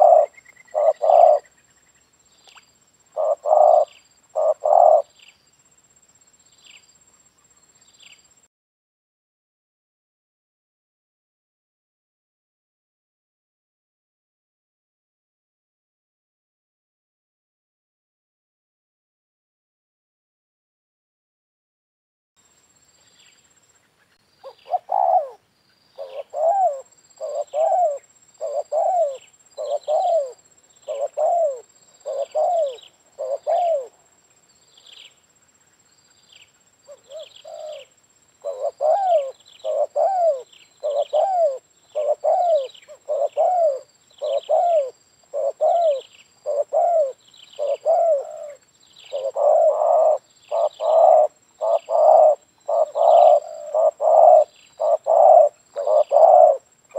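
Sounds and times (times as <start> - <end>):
dove cooing: 0.0 - 1.6, 3.1 - 5.2, 24.4 - 25.4, 26.0 - 34.0, 36.9 - 56.7.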